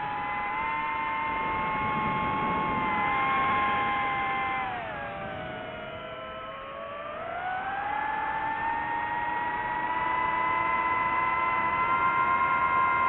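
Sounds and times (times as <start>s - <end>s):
drone motors and propellers whining: 0.0s - 13.0s.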